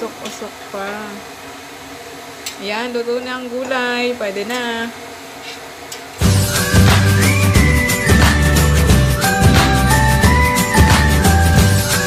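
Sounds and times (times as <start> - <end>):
theme music with a beat: 6.2 - 12.0.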